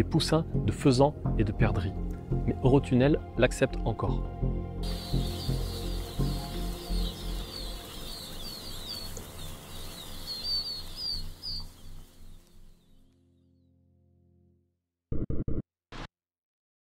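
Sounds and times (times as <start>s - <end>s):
low background music: 0.0s - 11.5s
chicks peeping: 4.8s - 12.8s.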